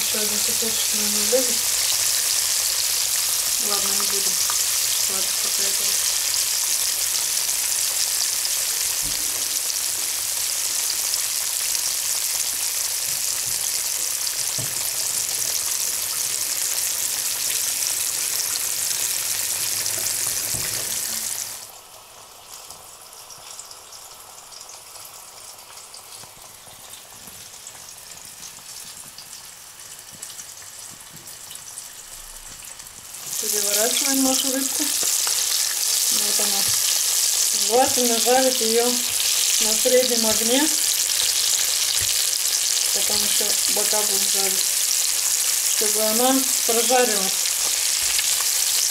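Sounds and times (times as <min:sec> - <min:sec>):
fish frying in hot oil: 0:00.0 - 0:48.9.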